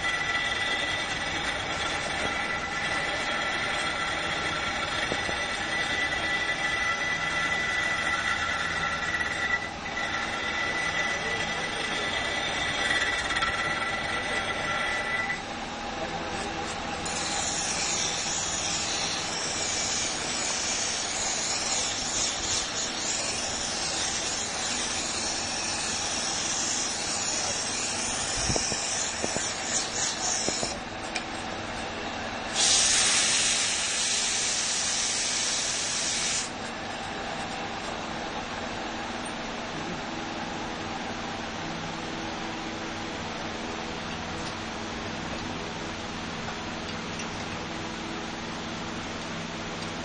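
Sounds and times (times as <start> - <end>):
tool scraping spinning salt: 0.0 - 15.4, 16.4 - 31.1, 32.5 - 37.5
lathe machine whine: 0.0 - 50.0.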